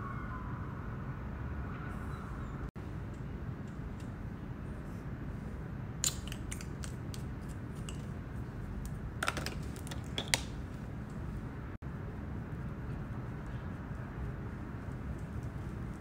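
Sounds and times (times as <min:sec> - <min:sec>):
low background hum: 0:00.0 - 0:16.0.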